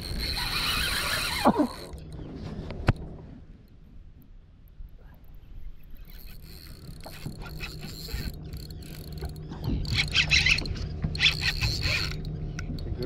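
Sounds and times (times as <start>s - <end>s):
fishing reel buzzing: 0.0s - 2.2s, 5.3s - 12.9s
boat engine idling: 0.0s - 13.0s.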